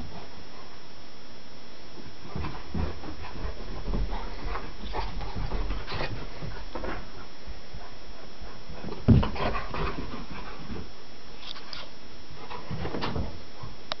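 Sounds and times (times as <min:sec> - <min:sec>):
dogs scuffling: 0:02.2 - 0:07.3
dog panting: 0:02.4 - 0:10.8.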